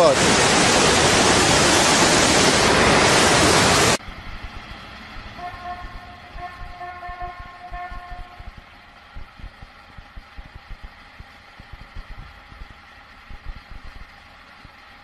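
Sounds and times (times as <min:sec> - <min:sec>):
floodwater rushing: 0:00.0 - 0:04.5.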